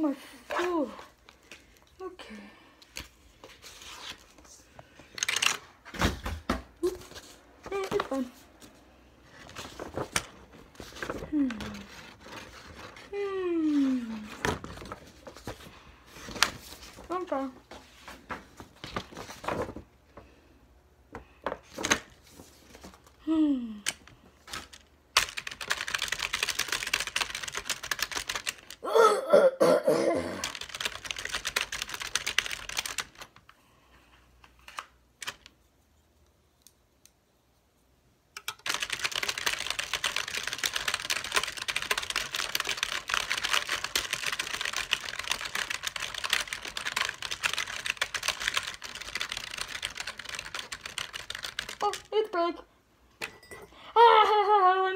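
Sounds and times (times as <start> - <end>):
typing on a computer keyboard: 5.2 - 5.6, 23.8 - 28.8, 30.4 - 33.4, 38.4 - 52.1
person grunting or laughing: 28.8 - 30.5.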